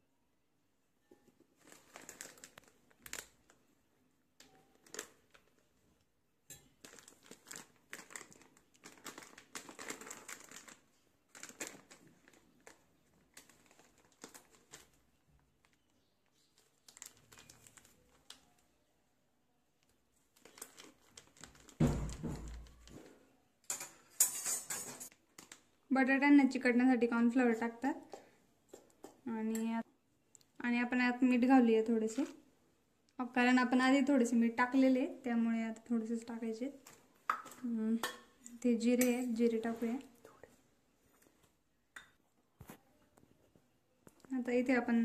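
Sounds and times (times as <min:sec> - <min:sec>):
plastic bag crinkling: 0:01.5 - 0:03.7, 0:04.4 - 0:05.8, 0:06.6 - 0:18.7, 0:19.8 - 0:23.1, 0:25.1 - 0:25.8.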